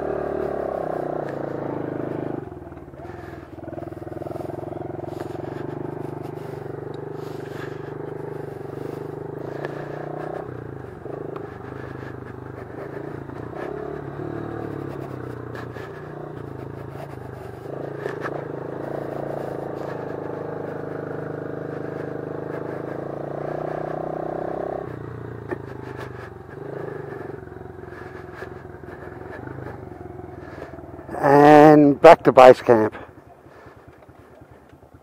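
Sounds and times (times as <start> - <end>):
motorcycle engine running: 0.0 - 35.0.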